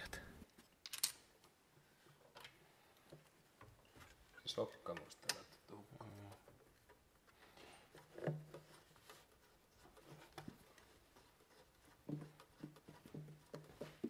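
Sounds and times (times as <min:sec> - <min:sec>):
hands clicking and knocking: 0:08.0 - 0:14.0.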